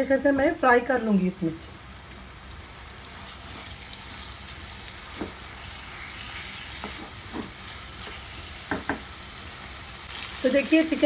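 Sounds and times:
chicken sizzling in a pan: 2.7s - 11.0s
spatula knocking against pan: 8.7s - 9.1s.

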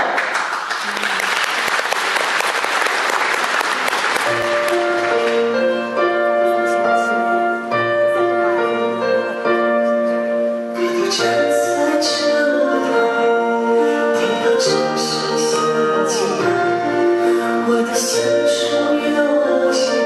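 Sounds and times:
audience applauding: 0.0s - 5.7s
piano music: 4.0s - 20.0s.

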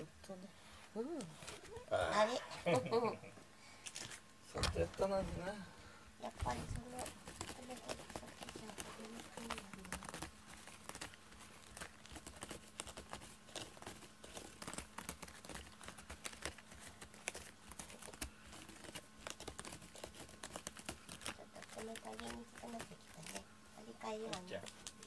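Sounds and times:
cat claws scratching cardboard: 6.4s - 23.4s.

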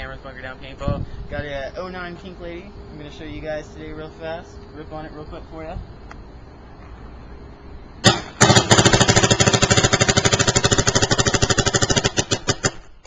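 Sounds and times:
paintball marker firing: 8.0s - 13.0s.

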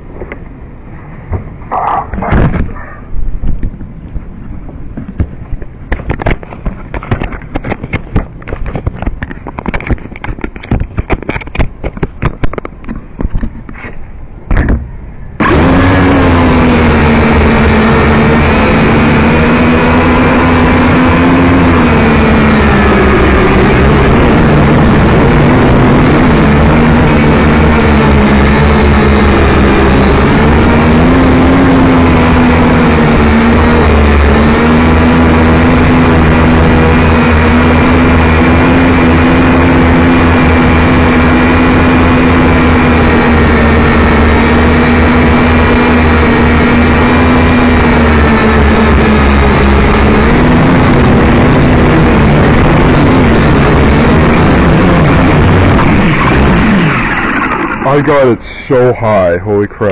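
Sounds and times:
handling knocks and clicks: 3.5s - 14.9s
quadcopter propellers buzzing: 15.4s - 59.9s.

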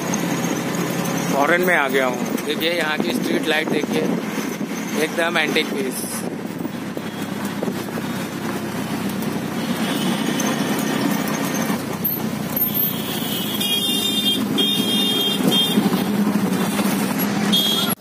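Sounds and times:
vehicle engine and road noise: 0.0s - 18.0s
high-pitched horn beeping: 12.8s - 16.0s, 17.4s - 18.0s.

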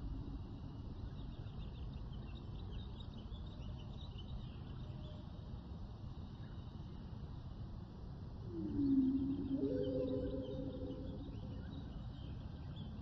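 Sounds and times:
steady low rumble: 8.4s - 12.2s.

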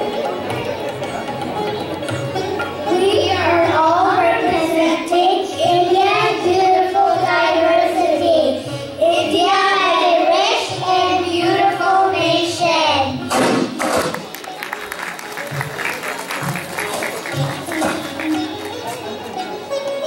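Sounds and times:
child singing: 2.9s - 13.2s.

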